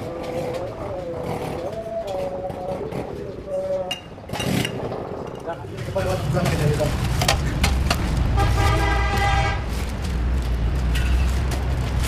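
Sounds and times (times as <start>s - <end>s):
low rumble of traffic: 0.0s - 12.0s
vehicle horn: 8.3s - 9.7s.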